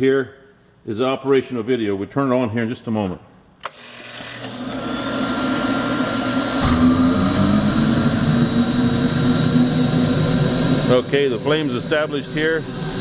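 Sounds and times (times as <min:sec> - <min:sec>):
blower motor whine: 0:03.7 - 0:13.0.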